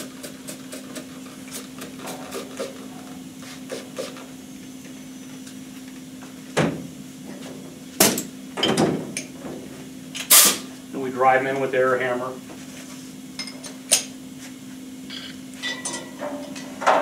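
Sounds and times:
steady shop hum: 0.0 - 17.0
metal tools clanking on workbench: 15.6 - 17.0.

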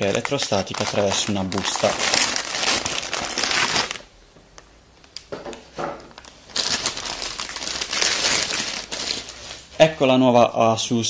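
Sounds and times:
plastic bag crinkling: 0.0 - 4.1, 6.0 - 9.9.

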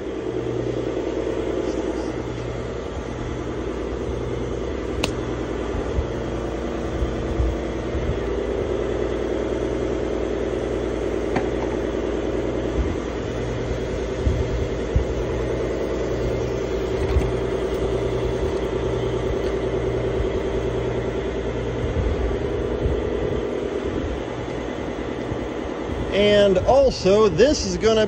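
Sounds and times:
machine throbbing: 0.0 - 28.0
sharp click: 5.0 - 5.2.

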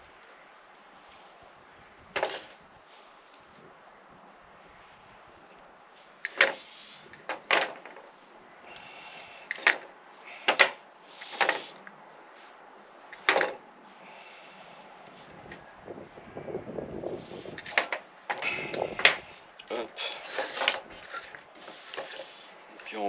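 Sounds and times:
hand tools clicking and knocking on wood: 2.2 - 2.6, 6.2 - 12.0, 13.1 - 13.6, 17.5 - 23.0.

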